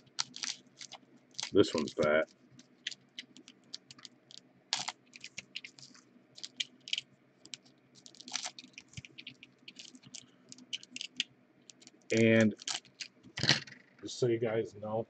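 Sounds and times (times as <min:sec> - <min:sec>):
wrappers crinkling and tearing: 0:00.0 - 0:13.3.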